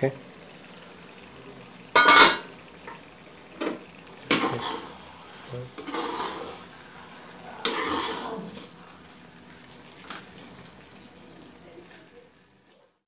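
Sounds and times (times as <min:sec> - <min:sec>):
metal spoon scraping metal pan: 0:05.8 - 0:06.7, 0:07.6 - 0:08.4.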